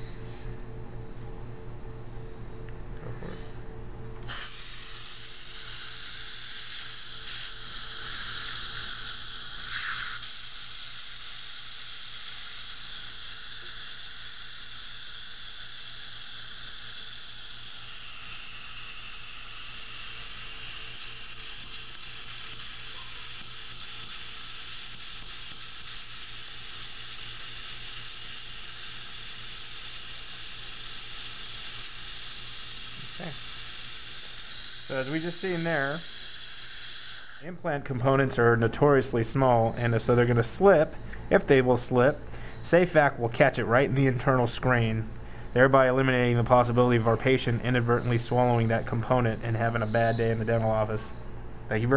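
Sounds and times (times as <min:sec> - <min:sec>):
dental suction hiss: 0:04.2 - 0:37.6.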